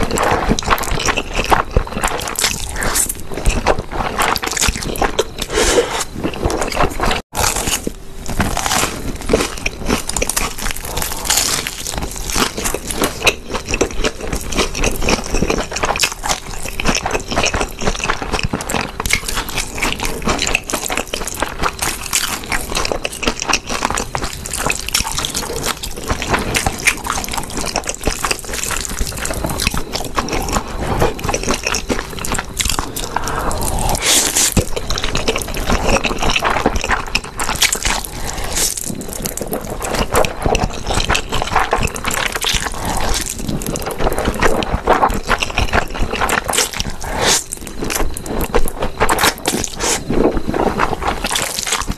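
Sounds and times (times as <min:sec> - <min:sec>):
wet slurping and chewing: 0:00.0 - 0:51.9.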